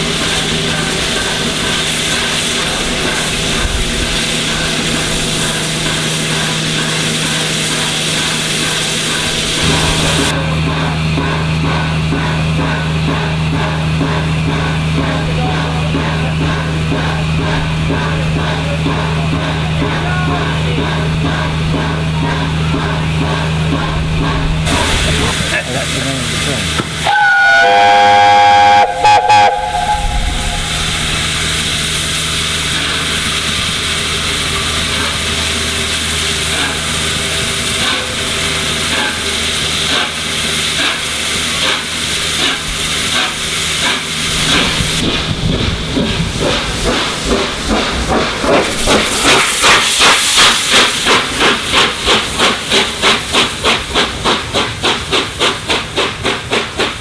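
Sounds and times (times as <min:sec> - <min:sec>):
locomotive exhaust beating: 0:00.0 - 0:57.0
steam hissing: 0:00.0 - 0:57.0
steam whistle blast: 0:27.0 - 0:31.4.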